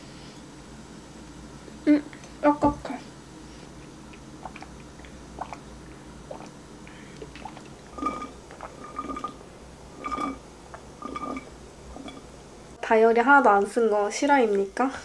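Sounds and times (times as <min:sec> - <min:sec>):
slurping through a straw: 0:07.3 - 0:09.4, 0:11.0 - 0:12.2.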